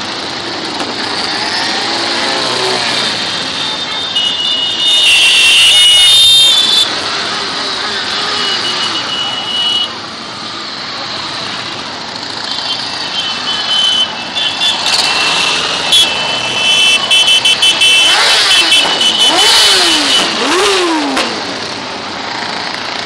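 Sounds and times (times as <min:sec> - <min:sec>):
motorcycle engines revving: 0:00.0 - 0:23.0
motorcycles riding past: 0:00.1 - 0:03.8.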